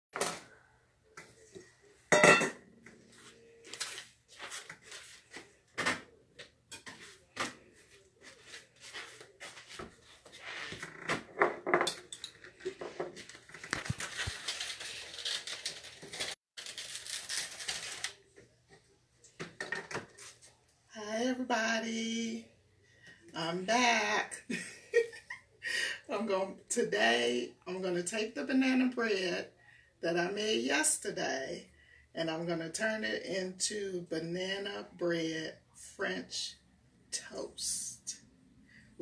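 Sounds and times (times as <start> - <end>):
dishes and utensils clinking: 2.1 - 2.6, 11.7 - 13.1.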